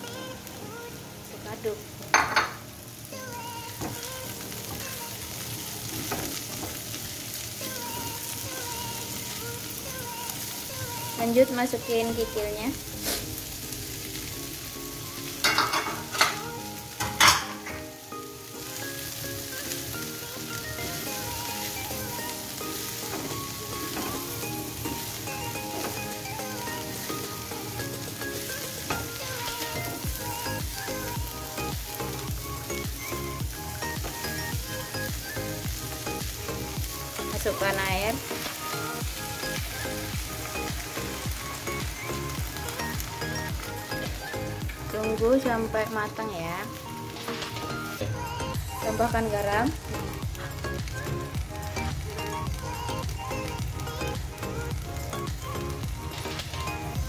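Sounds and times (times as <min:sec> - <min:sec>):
background music: 0:00.0 - 0:57.0
vegetables sizzling in hot oil: 0:00.0 - 0:57.0
spatula scraping wok: 0:12.9 - 0:13.4.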